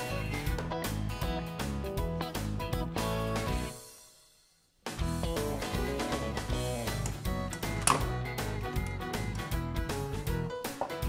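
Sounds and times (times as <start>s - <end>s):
instrumental music: 4.9s - 11.0s.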